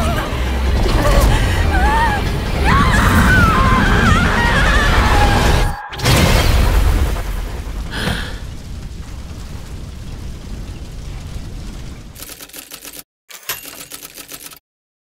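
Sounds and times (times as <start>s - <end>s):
explosion blast with rumbling tail: 2.3s - 12.2s
rapid stuttering clicks: 6.8s - 13.0s, 13.6s - 14.6s.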